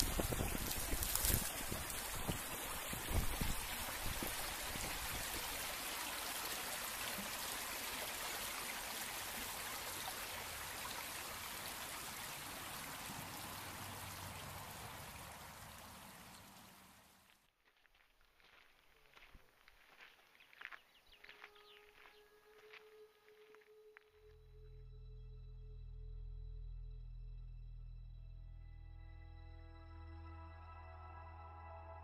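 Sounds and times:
wind buffeting microphone: 0.0s - 5.4s
stream flowing: 0.0s - 17.4s.

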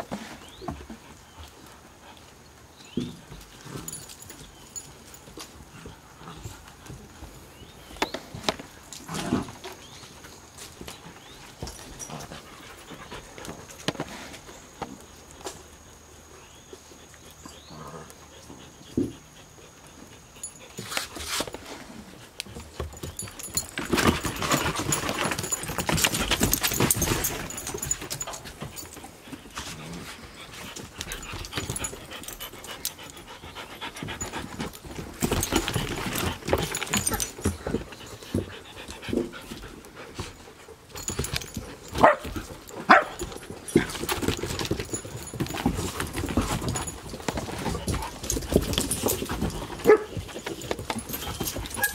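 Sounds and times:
dogs panting: 9.4s - 51.9s
dog nails clicking on wooden boards: 40.9s - 51.9s.

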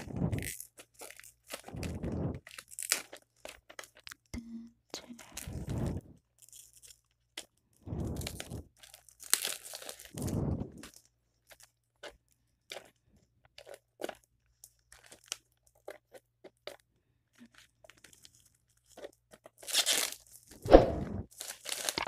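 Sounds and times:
plastic wrap crinkling: 0.0s - 4.3s, 5.1s - 12.9s, 13.6s - 16.8s, 17.4s - 20.6s, 21.2s - 22.0s
plastic wrap ripping: 0.0s - 4.3s, 8.1s - 10.9s, 19.4s - 20.6s, 21.3s - 22.0s.

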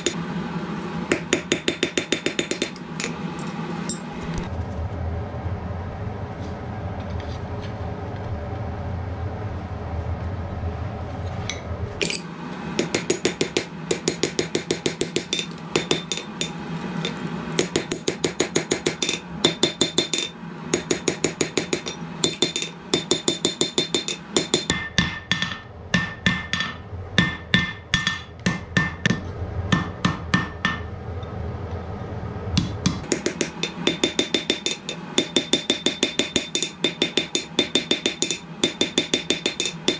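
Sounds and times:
hammer striking steel on an anvil: 0.0s - 0.2s, 1.1s - 4.1s, 12.0s - 30.9s, 32.6s - 39.9s
steady low hum: 0.0s - 39.9s.

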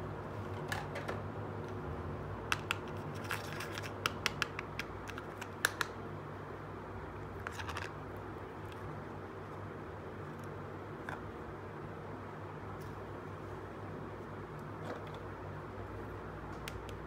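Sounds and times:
plastic toy clicks and taps: 4.0s - 5.9s.

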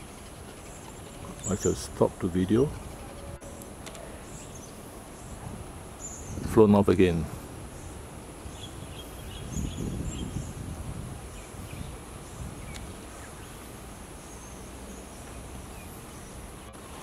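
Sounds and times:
insects hissing: 7.4s - 17.0s.

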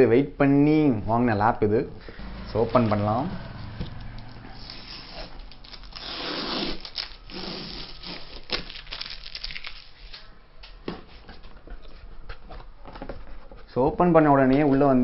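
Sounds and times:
tape and cardboard crackling: 4.0s - 13.7s
packing tape ripping off cardboard: 4.6s - 10.2s.

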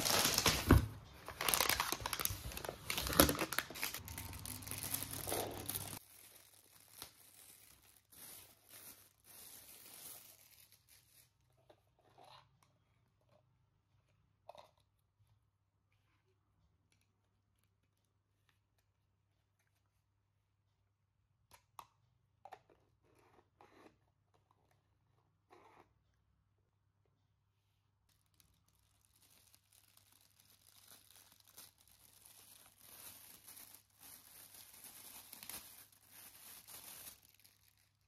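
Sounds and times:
packaging crackling: 0.0s - 11.2s, 28.1s - 38.0s
packaging rustling: 0.0s - 11.2s, 28.1s - 38.0s.

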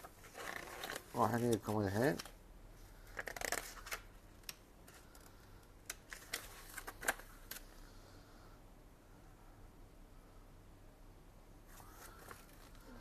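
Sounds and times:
paper crackling and rustling: 0.0s - 2.4s, 3.0s - 5.3s, 5.9s - 7.7s.

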